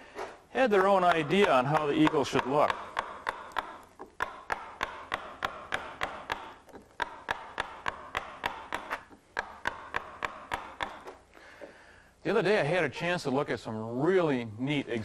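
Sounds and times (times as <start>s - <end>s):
mallet tapping a gouge into wood: 0.6s - 11.2s.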